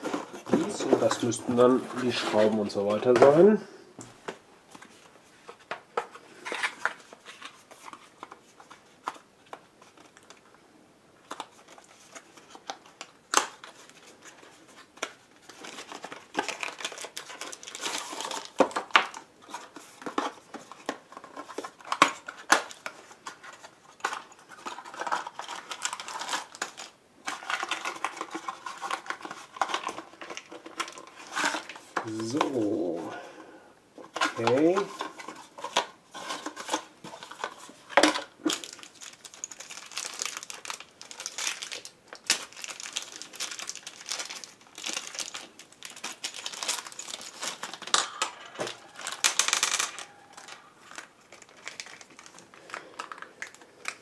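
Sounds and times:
plastic wrapping crinkling: 11.2 - 33.0, 34.0 - 54.0.

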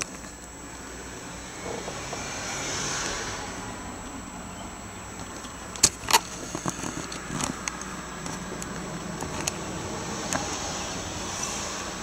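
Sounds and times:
steady background hiss: 0.0 - 12.0
sharp clicks: 5.1 - 9.6.

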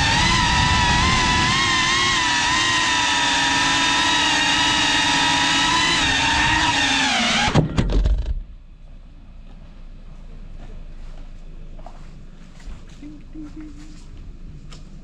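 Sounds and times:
drone motors whining: 0.0 - 8.5.

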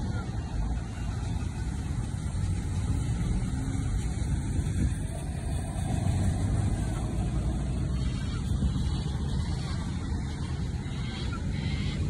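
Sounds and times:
floodwater rushing: 0.0 - 10.9
truck crossing bridge: 0.0 - 12.0.

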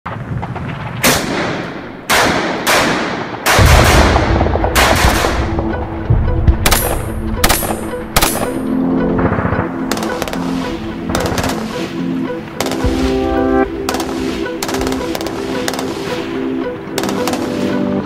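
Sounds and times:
heavy gunshots with echo: 1.0 - 5.8
background music: 3.4 - 18.0.

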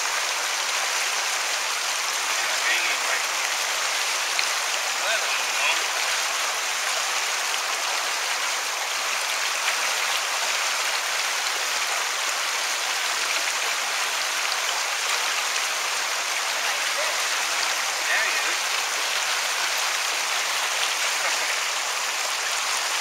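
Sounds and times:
water rushing over rocks: 0.0 - 23.0.

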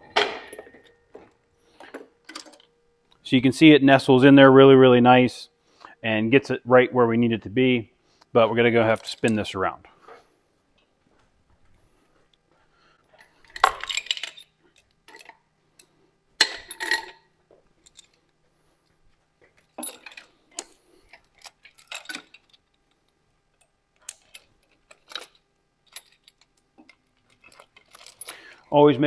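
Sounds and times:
steel chains clinking and rattling: 13.1 - 15.4, 16.4 - 18.3, 19.5 - 22.8, 23.6 - 29.0.

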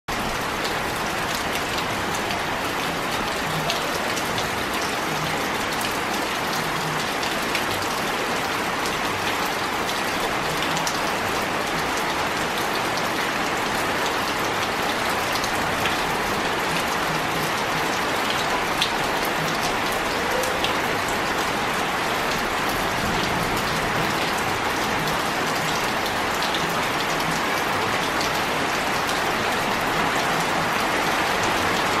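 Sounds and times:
rain on stone paving: 0.1 - 32.0.

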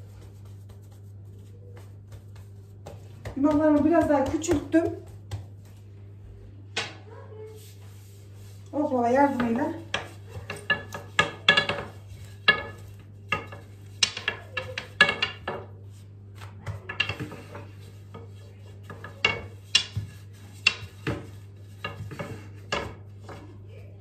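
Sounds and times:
wooden rolling pin clacking: 2.3 - 5.6, 9.2 - 15.8, 16.6 - 23.4.

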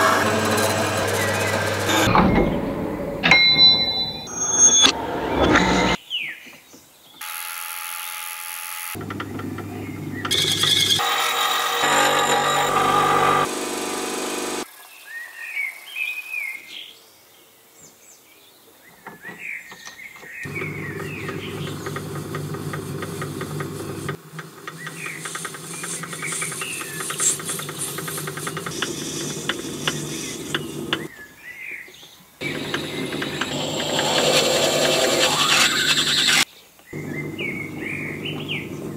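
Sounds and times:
metal lathe motor humming: 0.0 - 2.1, 9.0 - 14.6, 20.5 - 31.1, 32.4 - 36.4, 37.0 - 38.9
birds chirping: 17.8 - 38.9.

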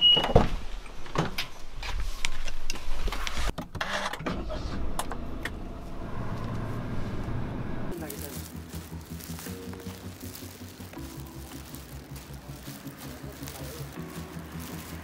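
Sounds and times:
car engine humming: 4.4 - 15.0.

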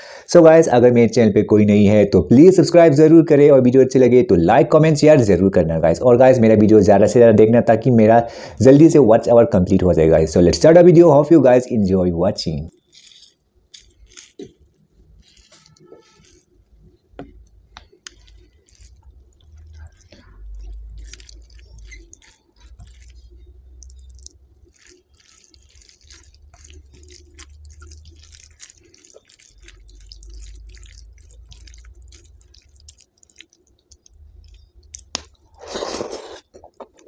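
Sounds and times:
mouth eating sounds: 12.7 - 37.0
wet squelching of fingers in rice: 12.8 - 16.8, 17.4 - 36.2.

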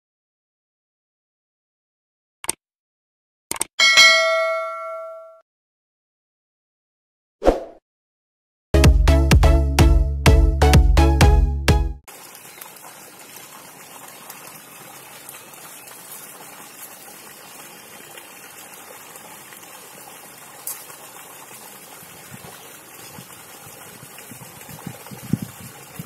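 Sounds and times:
water pouring onto ground: 12.1 - 26.0.

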